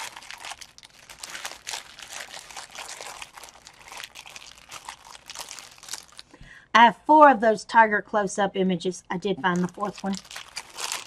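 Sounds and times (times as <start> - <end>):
plastic bag crinkling: 0.0 - 6.4, 9.5 - 11.0.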